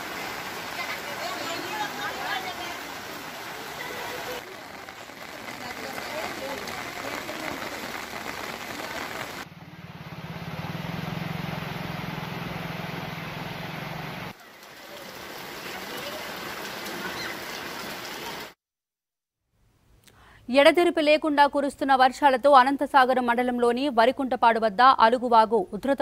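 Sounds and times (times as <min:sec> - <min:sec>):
rushing floodwater: 0:00.0 - 0:18.6.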